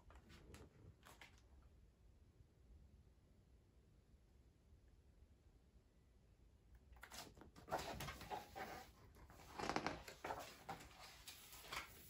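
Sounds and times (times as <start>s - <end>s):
book page rustling: 7.0s - 12.0s.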